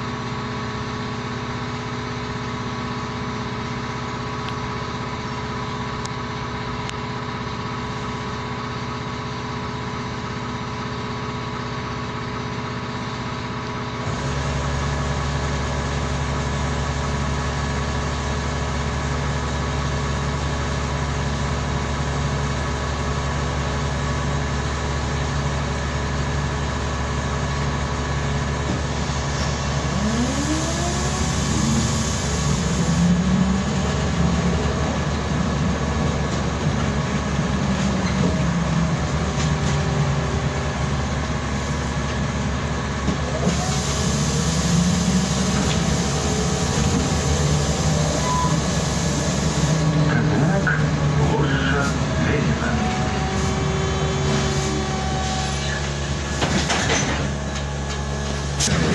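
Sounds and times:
traction motor whine rising: 0:28.4 - 0:42.3, 0:43.0 - 0:56.5.

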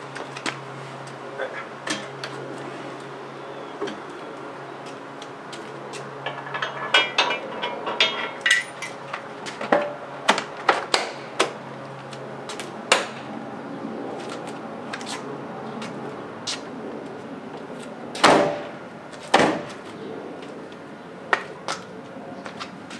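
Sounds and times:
metal clanks of bike rack: 0:06.2 - 0:10.0.

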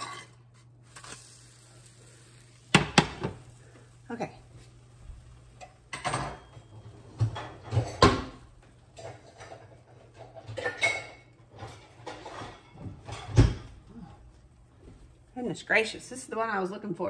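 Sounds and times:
utensils clattering: 0:05.6 - 0:13.7
drawers and cupboards opening and shutting: 0:06.0 - 0:10.8, 0:11.5 - 0:13.8.

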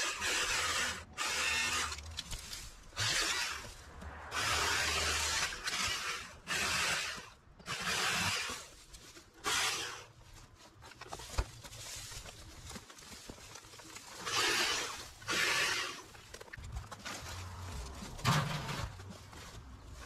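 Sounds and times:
garden tool scraping: 0:00.0 - 0:20.0
soft rustling: 0:10.2 - 0:14.3.

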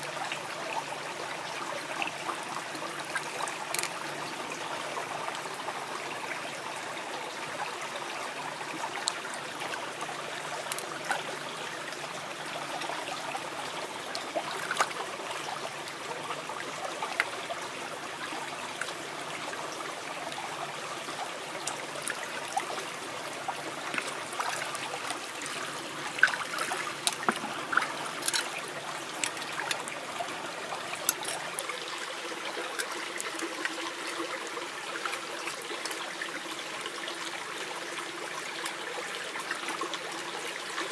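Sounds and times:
stream trickling over stones: 0:00.0 - 0:40.9
shells clicking in water: 0:03.7 - 0:04.0, 0:10.6 - 0:10.9, 0:26.3 - 0:30.0, 0:31.0 - 0:31.7.

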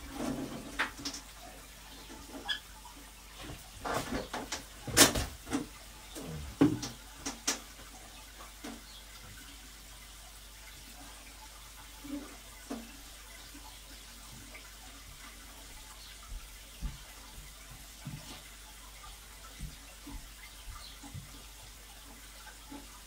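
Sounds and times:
water running through a hose: 0:00.0 - 0:23.0
sharp knocks and clatters: 0:03.4 - 0:05.8, 0:06.6 - 0:07.7.

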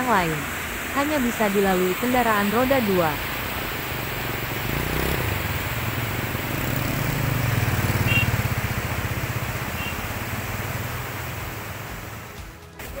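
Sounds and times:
fast-flowing river rushing: 0:00.0 - 0:12.4
motorcycle engine running: 0:02.4 - 0:13.0.

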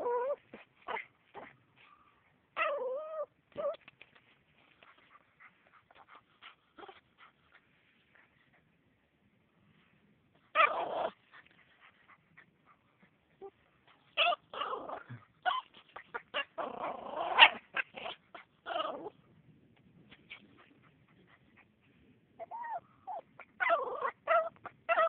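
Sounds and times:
puppy whimpering: 0:00.0 - 0:01.5, 0:02.6 - 0:03.9, 0:10.6 - 0:11.2, 0:13.4 - 0:19.2, 0:22.4 - 0:25.0.

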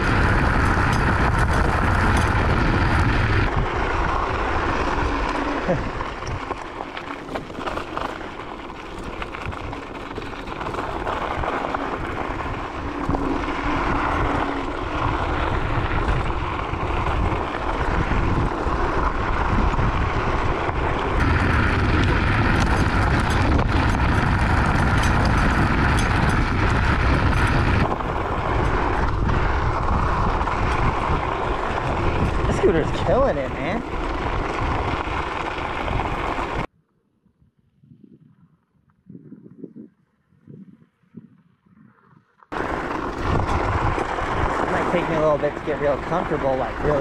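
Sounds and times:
tyres crunching over gravel: 0:00.0 - 0:36.7, 0:42.5 - 0:47.0
wind rumbling on microphone: 0:00.0 - 0:47.0
small clicks and rattles: 0:21.2 - 0:29.4.

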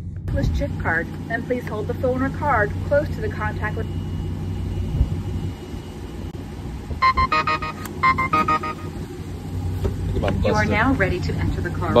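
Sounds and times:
car engine idling: 0:00.0 - 0:12.0
payment terminal beeping: 0:07.0 - 0:09.0.

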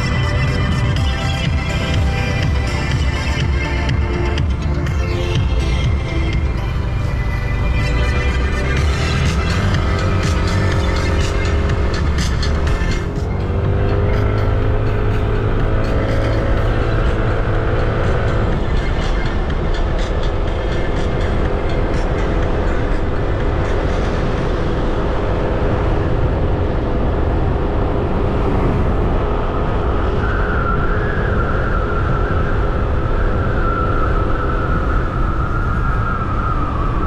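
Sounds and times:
scooter engine running: 0:00.0 - 0:27.1
wind and road noise: 0:00.0 - 0:37.0.

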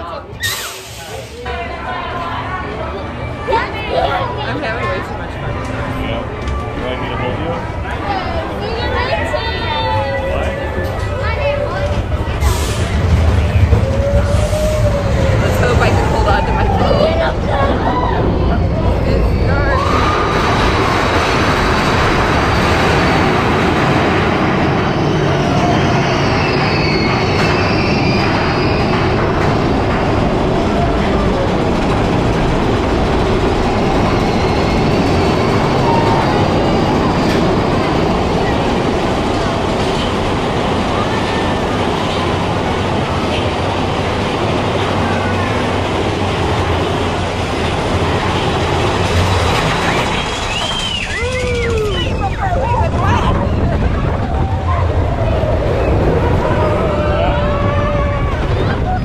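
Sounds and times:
roller coaster cars rumbling: 0:00.0 - 0:59.0
faint high squeal: 0:24.9 - 0:28.9.

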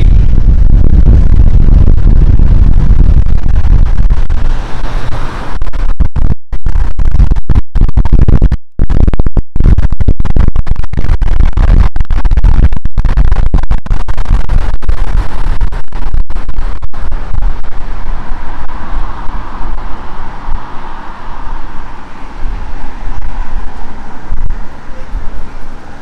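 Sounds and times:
wind buffeting microphone: 0:00.0 - 0:06.1, 0:16.6 - 0:26.0.

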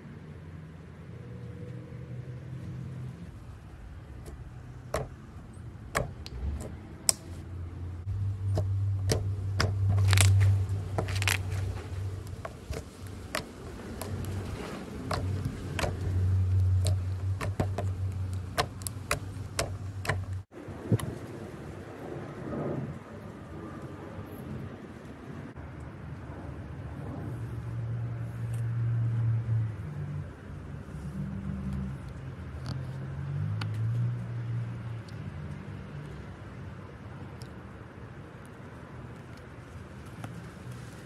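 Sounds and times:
low rumble: 0:03.2 - 0:24.8.

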